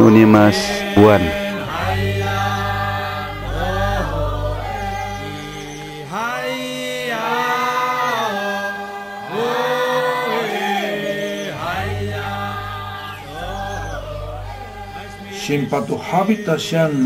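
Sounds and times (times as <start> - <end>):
low steady hum: 0.0 - 6.1, 11.3 - 16.0
voices chanting long held notes: 0.0 - 17.0.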